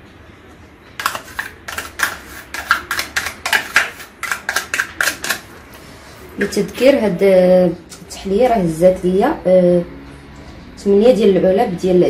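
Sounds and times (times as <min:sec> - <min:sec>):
metal spoon scraping plastic cup: 0:01.0 - 0:05.5.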